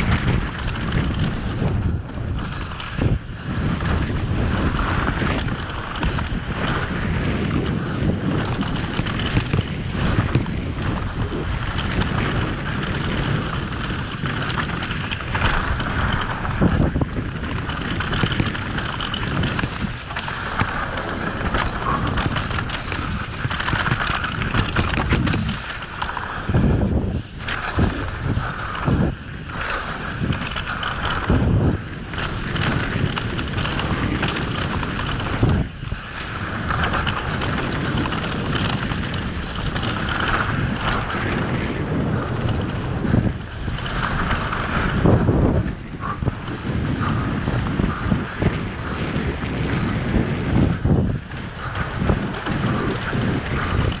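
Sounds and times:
bike knocking and rattling: 0.0s - 54.0s
wind rush on microphone: 0.0s - 54.0s
tyres on dirt: 2.3s - 45.4s.

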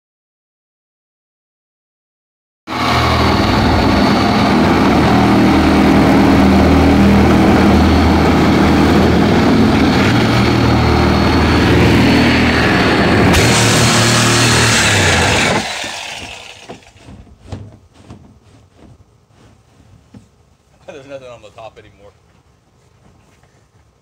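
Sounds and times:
reciprocating saw cutting plastic: 13.3s - 19.0s.

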